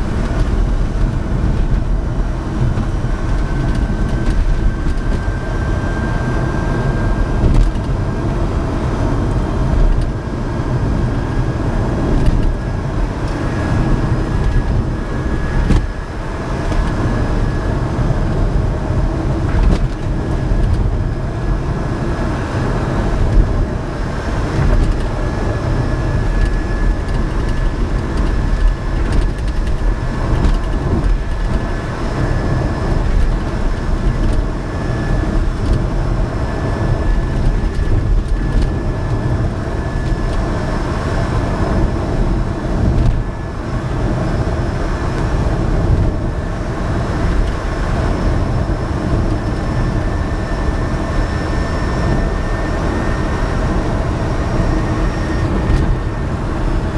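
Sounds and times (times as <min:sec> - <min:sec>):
road and tyre rumble: 0:00.0 - 0:56.9
thin high whine: 0:08.4 - 0:56.9.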